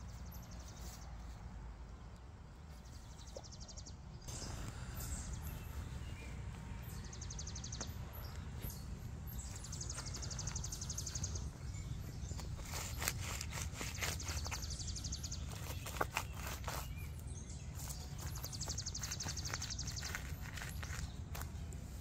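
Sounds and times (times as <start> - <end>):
steady low rumble: 3.9 - 12.6
footsteps on grass and dirt: 4.3 - 22.0.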